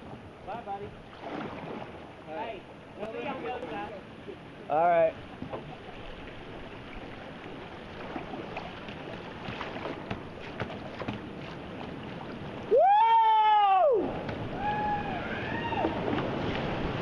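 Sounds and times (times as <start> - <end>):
water splashing against hull: 0.0 - 17.0
whitewater rushing: 0.4 - 17.0
person whooping: 12.7 - 16.0.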